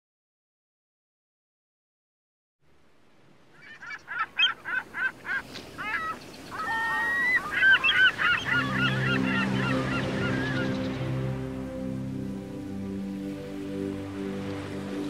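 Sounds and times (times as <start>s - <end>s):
steady background hiss: 2.7s - 15.0s
flock of birds calling: 3.6s - 11.2s
music with held low notes: 8.4s - 15.0s.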